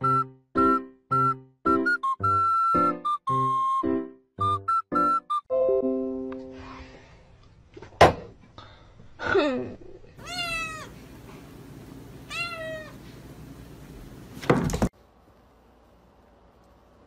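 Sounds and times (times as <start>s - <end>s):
cat meowing: 10.2s - 11.0s, 12.3s - 13.0s.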